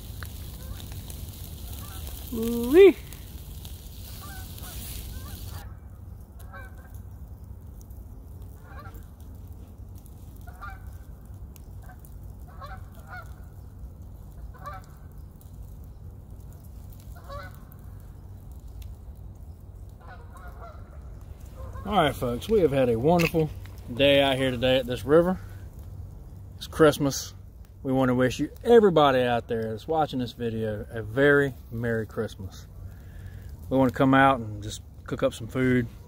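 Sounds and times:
steady low rumble: 0.0s - 36.0s
geese honking faintly: 0.4s - 3.2s, 3.9s - 5.8s, 6.4s - 7.0s, 8.5s - 9.1s, 10.4s - 11.0s, 11.8s - 13.6s, 14.4s - 15.1s, 17.1s - 17.8s, 19.8s - 23.1s.

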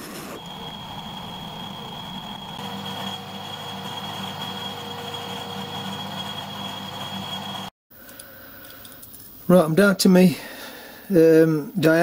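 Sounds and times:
lathe running with high whine: 0.4s - 7.7s.

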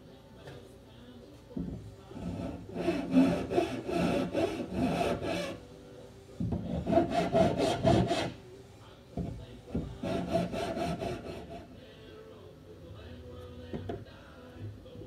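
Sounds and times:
hand tool sawing wood: 2.2s - 5.6s, 6.7s - 8.4s, 9.9s - 11.6s.

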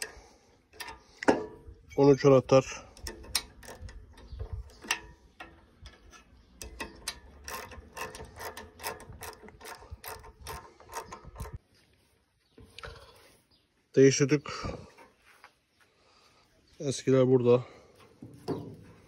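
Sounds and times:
ratchet wrench clicking: 3.0s - 11.6s.

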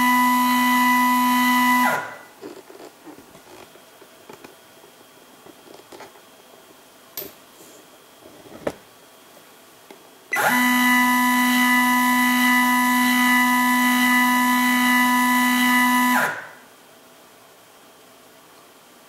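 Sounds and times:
stepper motor whine: 0.0s - 2.2s, 10.3s - 16.5s.

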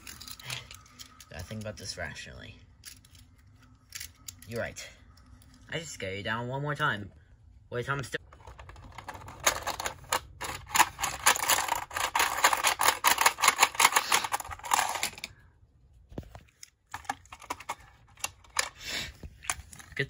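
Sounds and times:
toy crane plastic clicking: 8.4s - 15.3s.

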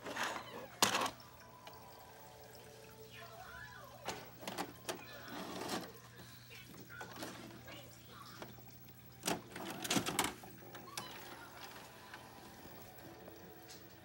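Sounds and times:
vcr loading mechanism clicks: 0.1s - 1.8s, 4.1s - 5.9s, 9.2s - 11.3s.

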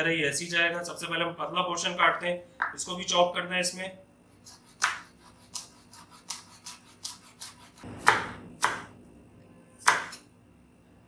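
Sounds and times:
knife chopping on wooden board: 4.4s - 9.0s, 9.8s - 10.2s.

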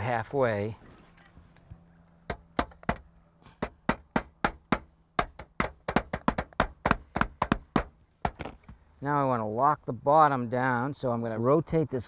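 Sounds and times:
hammer driving nails into metal: 3.6s - 8.5s.

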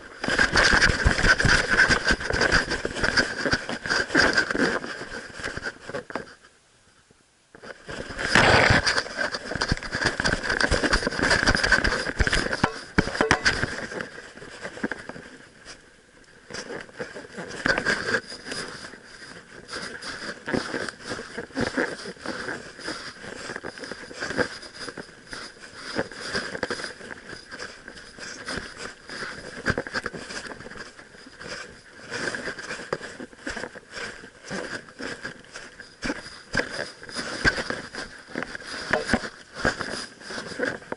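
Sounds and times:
camera mount rubbing and knocking: 8.3s - 14.0s, 36.0s - 40.0s
faint steady high tone: 12.6s - 13.8s.

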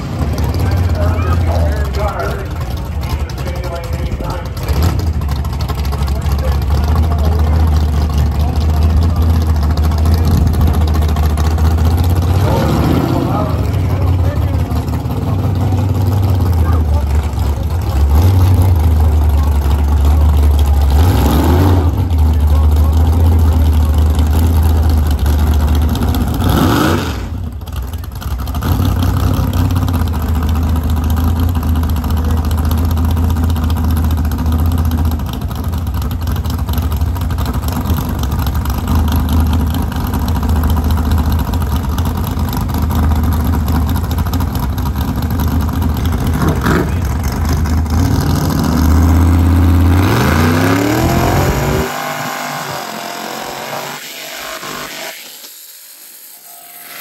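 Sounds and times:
car engine droning and revving: 0.0s - 57.0s.

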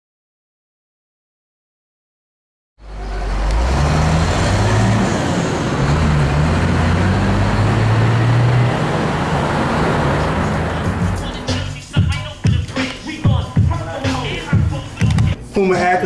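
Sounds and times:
motor vehicle running close: 2.8s - 11.7s.

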